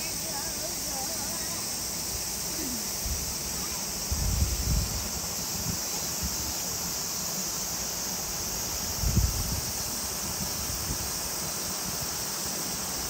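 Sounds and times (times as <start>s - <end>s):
high-pitched outdoor hiss: 0.0s - 13.0s
wind rumble on microphone: 4.0s - 6.5s, 8.8s - 11.2s.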